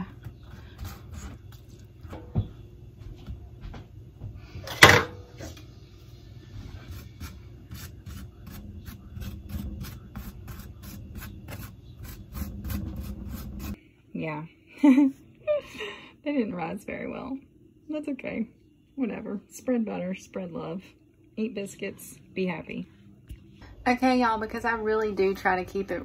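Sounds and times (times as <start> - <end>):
pastry brush dabbing: 6.4 - 13.8.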